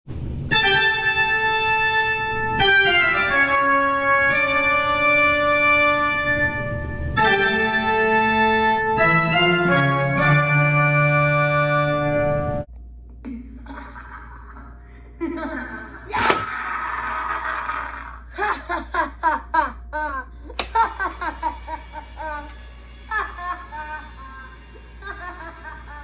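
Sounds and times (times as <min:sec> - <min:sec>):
organ chords: 0:00.4 - 0:12.7, 0:20.5 - 0:26.0.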